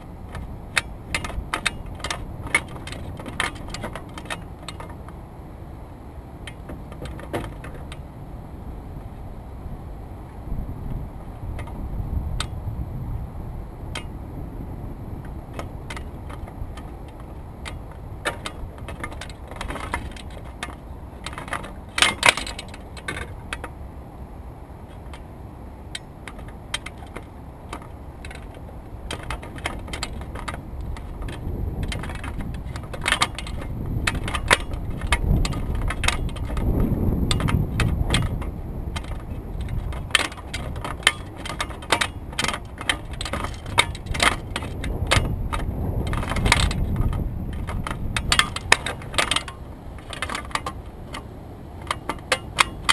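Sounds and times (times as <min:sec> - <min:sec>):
fishing tackle clicks and rattles: 0:00.0 - 0:05.2, 0:15.5 - 0:23.8, 0:25.9 - 0:52.9
wind rumbling on microphone: 0:00.0 - 0:52.9.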